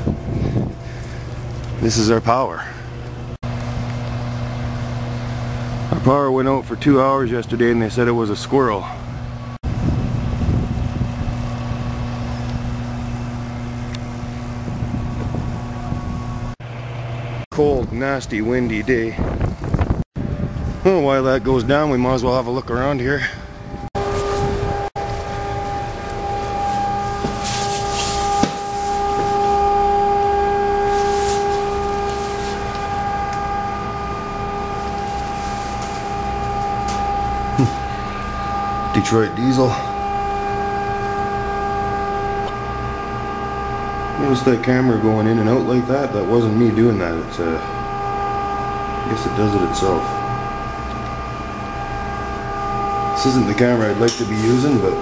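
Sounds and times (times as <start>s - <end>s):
wind buffeting microphone: 0.0s - 2.0s, 9.0s - 16.6s, 17.7s - 46.5s
electrical hum: 0.0s - 55.0s.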